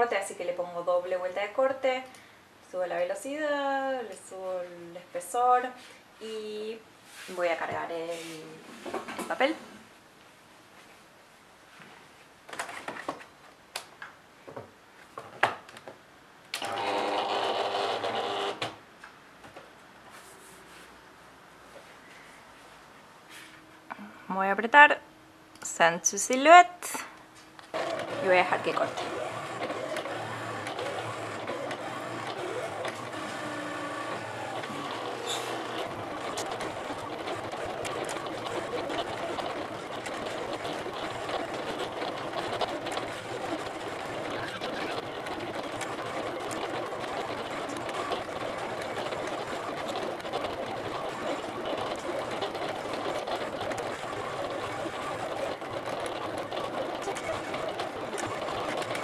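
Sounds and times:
cutting machine motors whirring: 16.6 - 18.7, 27.7 - 59.0.

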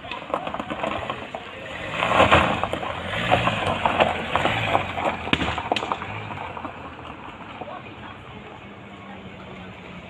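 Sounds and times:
fire crackling and popping: 2.8 - 7.5.

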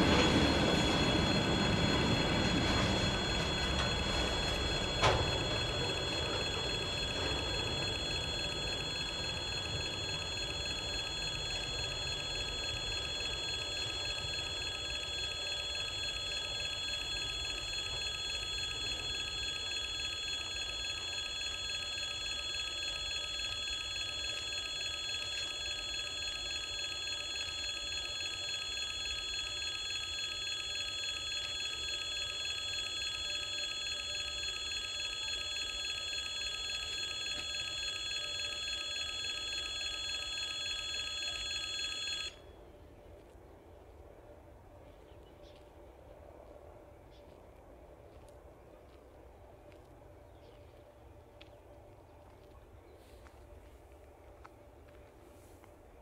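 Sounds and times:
level crossing bell ringing: 0.0 - 42.4.

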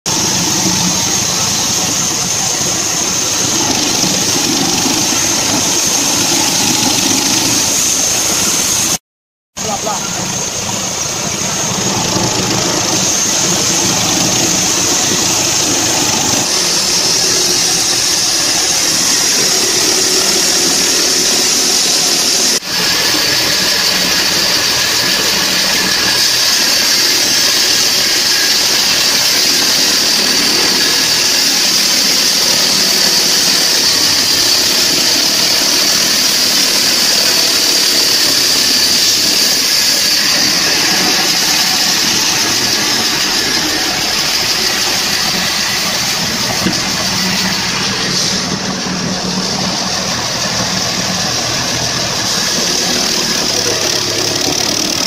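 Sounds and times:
sawmill engine running: 0.1 - 9.0, 9.6 - 55.0
saw blade hissing through log: 12.2 - 55.0.

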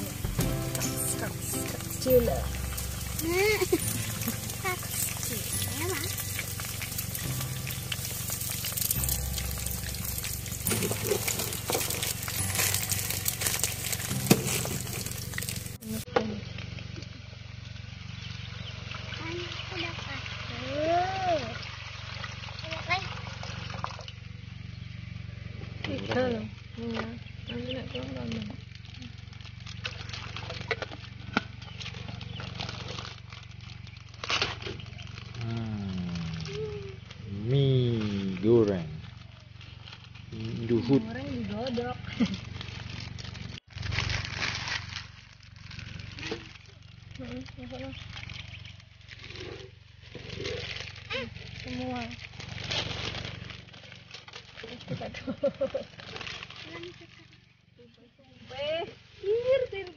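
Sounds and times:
eggs sizzling in oil: 0.0 - 16.0
water poured into pan: 0.0 - 16.0.

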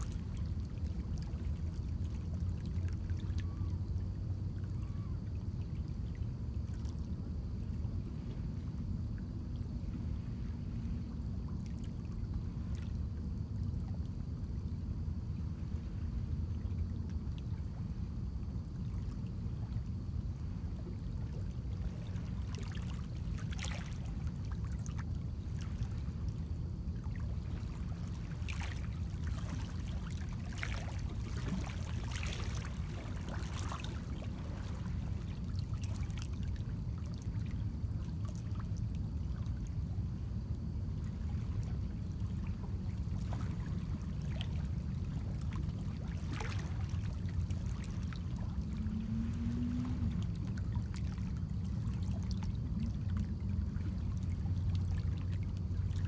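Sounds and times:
waves lapping against rocks: 27.4 - 37.6, 42.9 - 56.0.

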